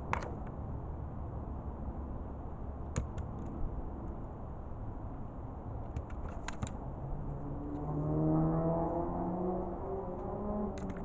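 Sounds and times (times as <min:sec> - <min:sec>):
vehicle engine hum: 0:03.5 - 0:11.0.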